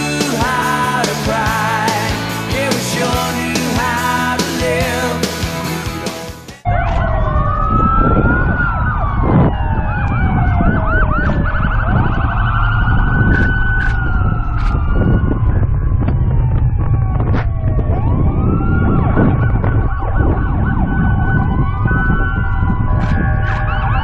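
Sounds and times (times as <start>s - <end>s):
emergency sirens wailing: 0.0s - 5.3s, 6.6s - 24.0s
low vehicle rumble: 6.6s - 24.0s.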